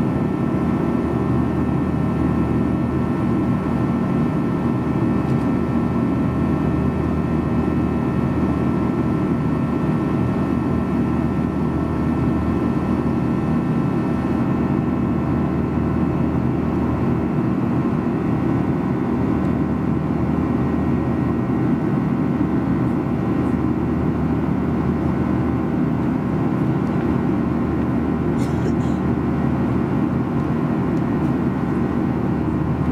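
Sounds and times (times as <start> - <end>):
airplane cabin low rumble: 0.0 - 32.9.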